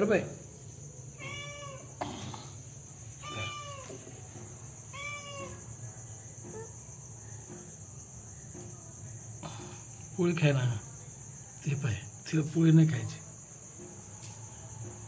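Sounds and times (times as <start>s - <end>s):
crickets chirring: 0.0s - 15.0s
cat meowing: 1.2s - 2.0s, 3.2s - 4.0s, 4.9s - 5.6s.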